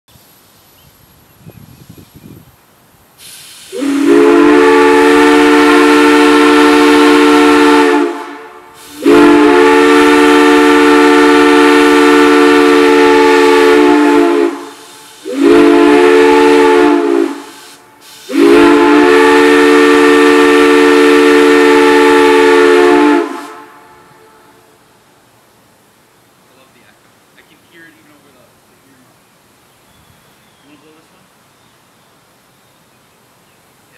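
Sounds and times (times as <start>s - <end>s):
air whistle blasts: 3.2s - 24.5s.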